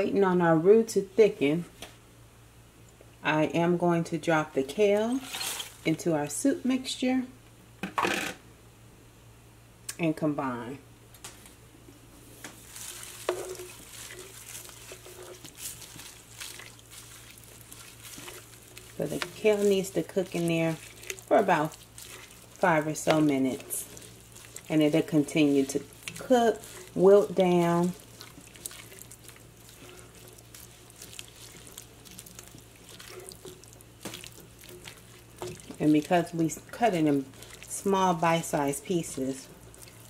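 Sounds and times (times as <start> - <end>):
spoon stirring soup: 12.6 - 40.0.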